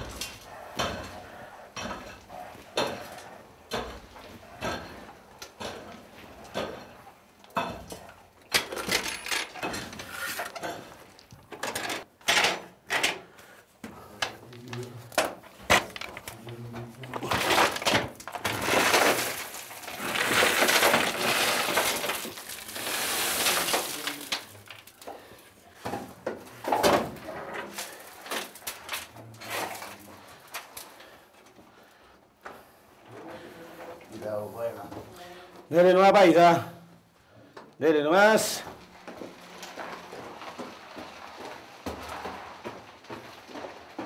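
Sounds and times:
rocks clattering in metal bucket: 14.7s - 30.9s
rock and grit pouring: 16.9s - 25.3s, 38.3s - 44.0s.

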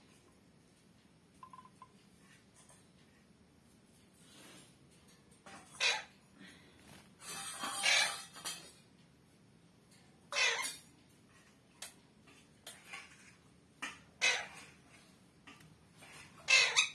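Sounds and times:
parakeet squawking and chirping: 5.7s - 6.2s, 7.3s - 8.4s, 10.3s - 10.8s, 14.2s - 15.1s, 16.0s - 16.9s.

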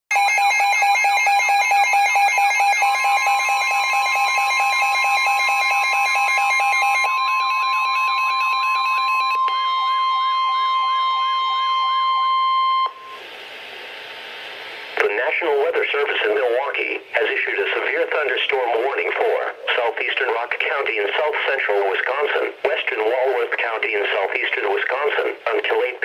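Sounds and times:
steady alarm tone: 0.1s - 13.2s
faint radio hiss: 13.0s - 26.0s.

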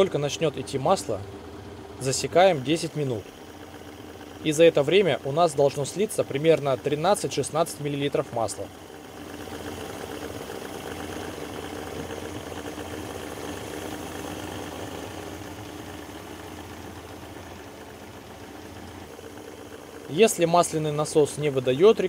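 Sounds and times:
outboard motor idling: 0.0s - 22.0s.

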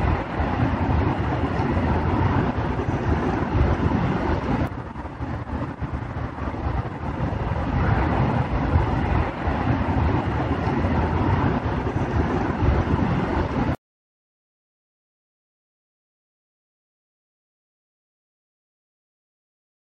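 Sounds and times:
rumbling noise with hiss: 0.0s - 13.8s.

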